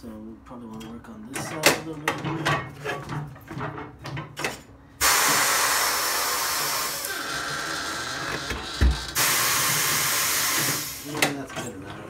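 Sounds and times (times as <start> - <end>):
compressed air hissing: 5.0 - 8.1, 9.1 - 11.1.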